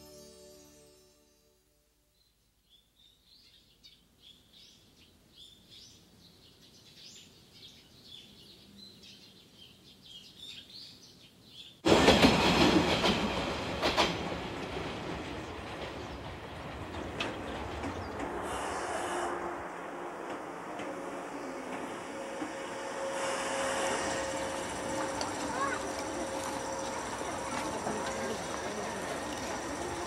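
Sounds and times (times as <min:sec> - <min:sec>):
train rushing past: 0:11.8 - 0:30.0
train wheels clacking: 0:11.9 - 0:19.4, 0:20.0 - 0:30.0.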